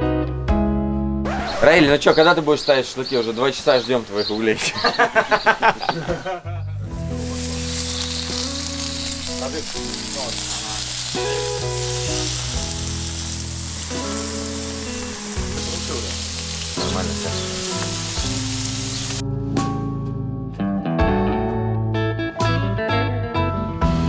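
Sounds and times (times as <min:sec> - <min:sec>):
background music with bass: 0:00.0 - 0:03.5, 0:04.2 - 0:24.0
meat sizzling on a grill: 0:06.8 - 0:19.2.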